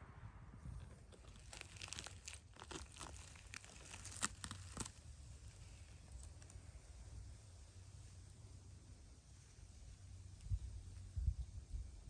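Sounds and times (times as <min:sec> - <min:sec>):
forest litter crackling under hand: 0:01.1 - 0:06.6.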